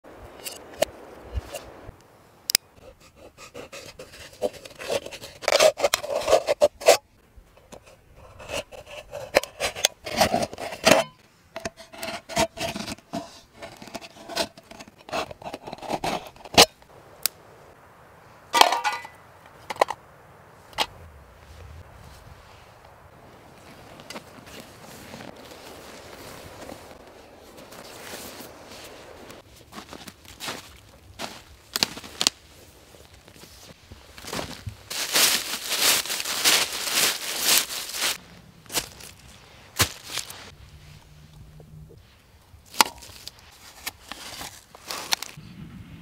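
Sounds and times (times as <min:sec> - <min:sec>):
knife scraping tin can: 0:03.4 - 0:07.0, 0:07.8 - 0:16.6.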